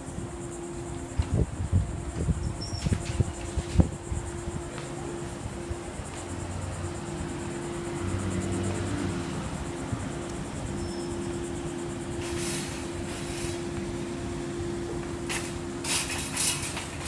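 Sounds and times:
faint pulsing insect buzz: 0:00.0 - 0:16.7
steady mechanical hum: 0:00.0 - 0:17.0
burst of hiss: 0:12.2 - 0:13.8, 0:15.3 - 0:16.9.

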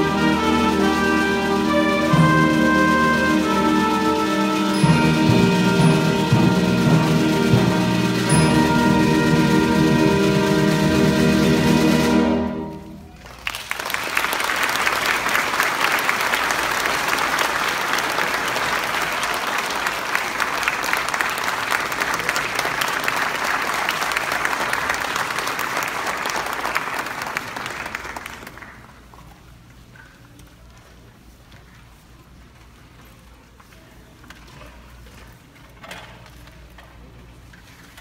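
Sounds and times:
music with held notes: 0:00.0 - 0:13.1
audience applause: 0:13.1 - 0:29.1.

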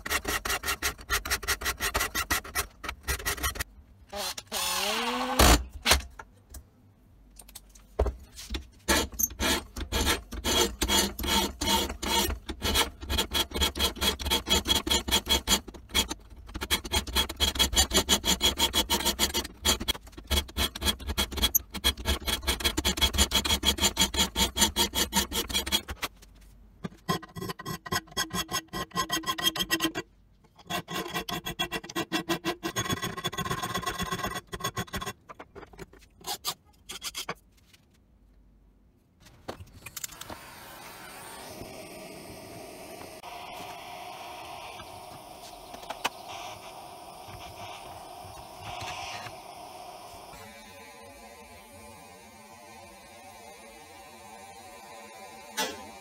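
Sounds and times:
file rasping on steel blade: 0:09.0 - 0:25.9.

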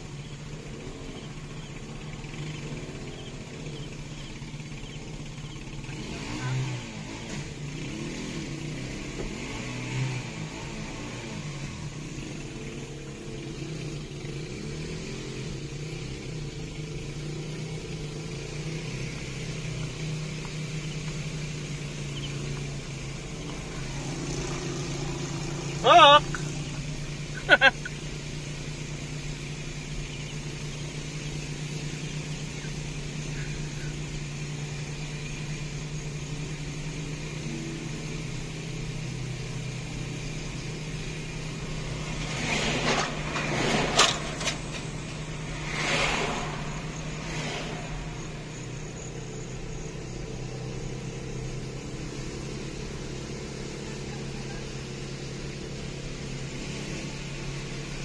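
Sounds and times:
car rolling drone inside cabin: 0:08.6 - 0:58.0
passing vehicle rushing noise: 0:39.4 - 0:58.0.

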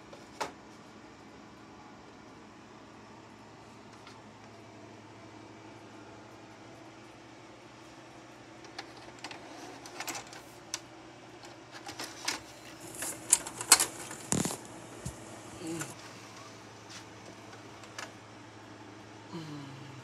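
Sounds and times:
tape loading mechanism whirring: 0:08.6 - 0:16.6
plastic clicks and clatter: 0:11.4 - 0:14.6.

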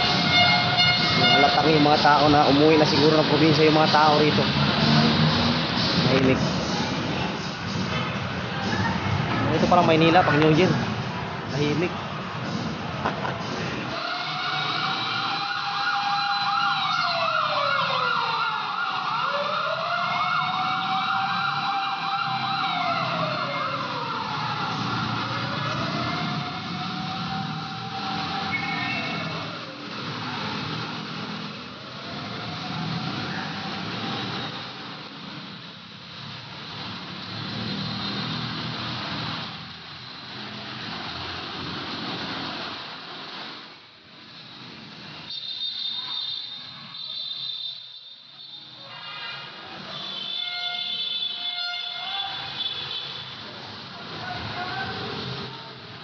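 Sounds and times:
vehicles passing: 0:00.0 - 0:56.0
siren slow wail: 0:13.9 - 0:34.8
siren fast warbling yelp: 0:14.0 - 0:29.6.

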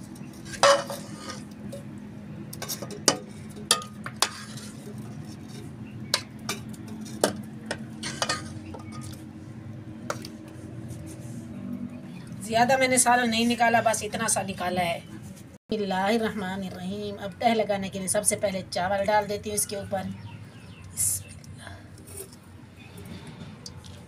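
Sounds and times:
spoon clinking and scraping pot: 0:00.2 - 0:01.9, 0:02.6 - 0:09.2.

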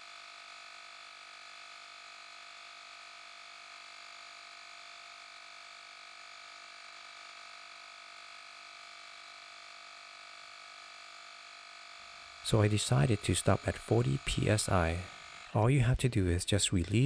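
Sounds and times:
tire inflator humming: 0:08.4 - 0:16.3.

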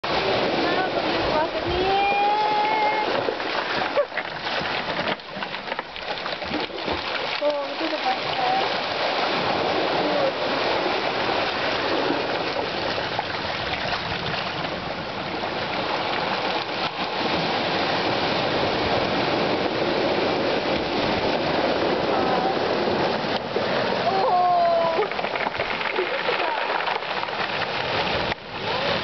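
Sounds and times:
waves washing over cobble stones: 0:00.0 - 0:29.0.

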